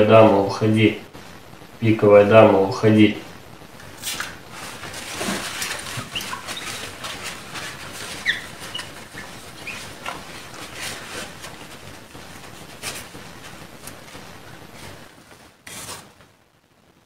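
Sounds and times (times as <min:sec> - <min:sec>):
cloth rubbing on glass: 0:03.9 - 0:16.2
cloth squeaking on glass: 0:04.0 - 0:16.2.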